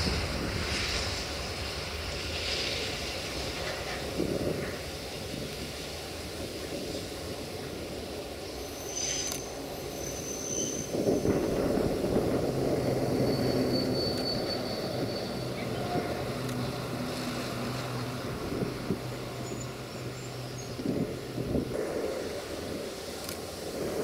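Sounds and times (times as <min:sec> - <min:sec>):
rushing rumbling noise: 0:00.0 - 0:24.0.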